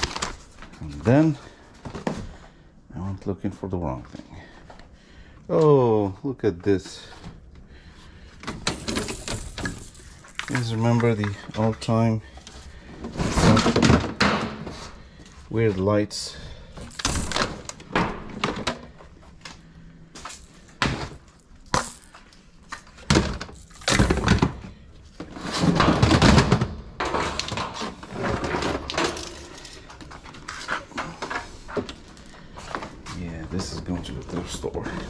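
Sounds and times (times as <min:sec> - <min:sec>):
hard objects clattering and knocking: 0:07.7 - 0:15.2, 0:16.7 - 0:35.0.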